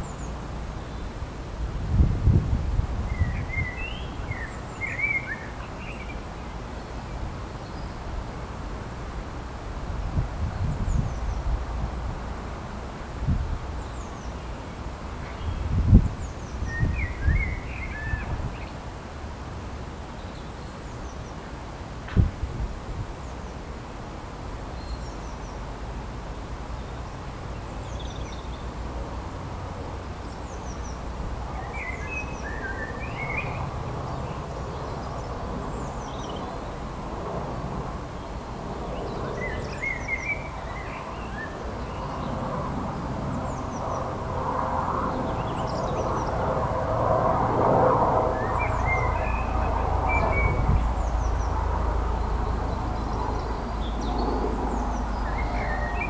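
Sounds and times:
small birds chirping: 0:26.4 - 0:28.9, 0:30.1 - 0:37.3, 0:38.1 - 0:46.6, 0:48.2 - 0:56.0
low outdoor rumble: 0:41.6 - 0:56.0.

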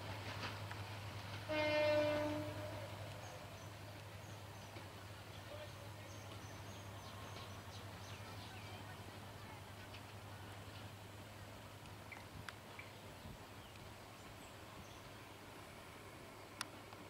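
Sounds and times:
train rumble: 0:00.0 - 0:17.0
train horn blast: 0:01.5 - 0:03.0.

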